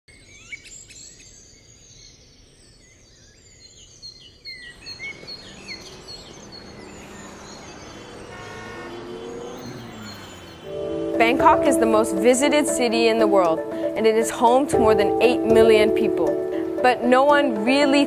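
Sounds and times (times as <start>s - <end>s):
small birds chirping: 0.1s - 11.1s
city traffic noise: 5.5s - 18.0s.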